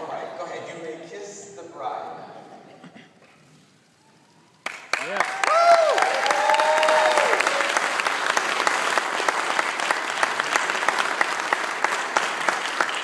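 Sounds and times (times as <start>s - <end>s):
congregation applauding: 4.4s - 13.0s
cheering whoops: 5.0s - 8.0s.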